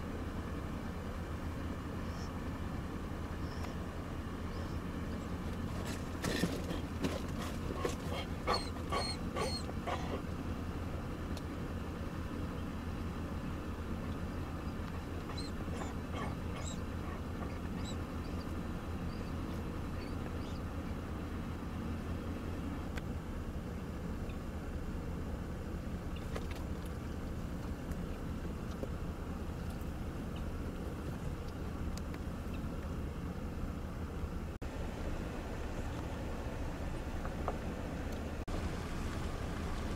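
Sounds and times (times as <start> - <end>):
car road noise inside cabin: 0.0 - 39.9
dog whimpering: 7.7 - 10.2, 15.3 - 18.4.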